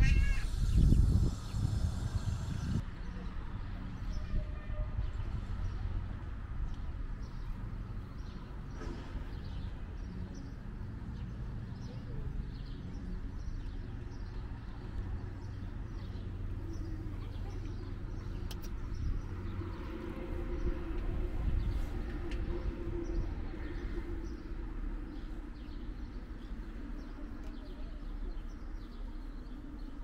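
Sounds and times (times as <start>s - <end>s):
small birds chirping: 0.0s - 4.2s, 6.7s - 20.0s, 21.5s - 30.0s
low rumble: 16.3s - 30.0s.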